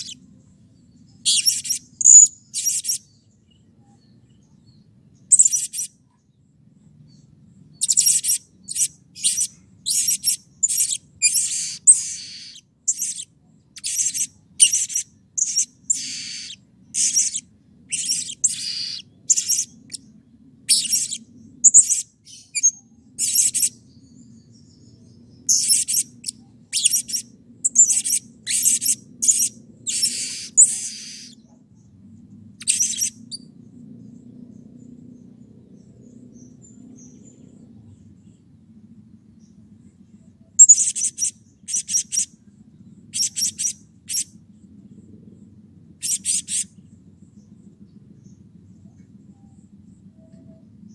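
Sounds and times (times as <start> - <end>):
faint low rumble: 0.0 - 50.9
parrot shrill calls: 7.8 - 19.8, 25.5 - 31.4.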